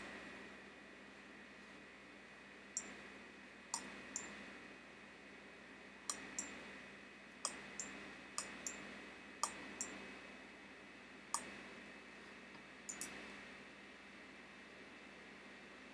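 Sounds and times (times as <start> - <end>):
faint electrical hum: 0.0 - 15.9
mouse button clicks: 12.9 - 13.2.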